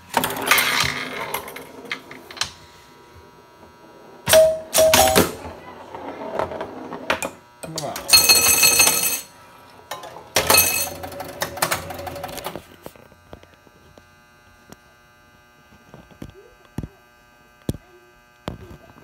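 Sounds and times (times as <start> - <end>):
pinball machine ringing and clatter: 0.1 - 2.1, 4.2 - 5.6, 7.7 - 9.3, 9.9 - 12.6.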